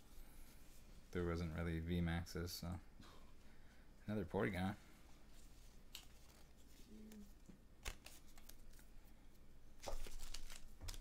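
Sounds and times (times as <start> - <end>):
cards handled: 5.4 - 8.9, 9.8 - 11.0
foil wrapper crinkling: 9.8 - 11.0.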